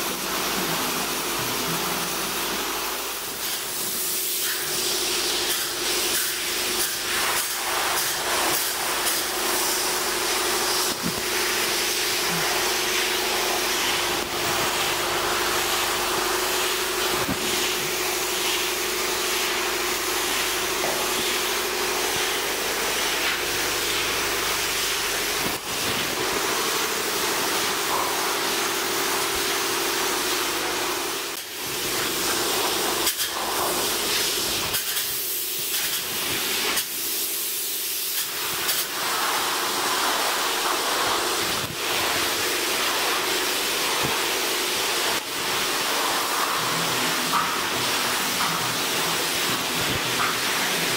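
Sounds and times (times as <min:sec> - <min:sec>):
spray foam gun hissing: 0:00.0 - 0:50.9
steady hum: 0:04.6 - 0:34.7.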